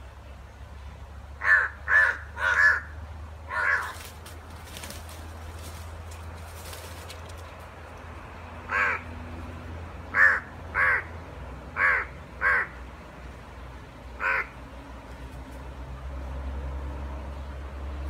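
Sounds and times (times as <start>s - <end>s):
crow cawing: 1.4s - 4.0s, 8.7s - 9.1s, 10.1s - 11.1s, 11.8s - 12.8s, 14.2s - 14.5s.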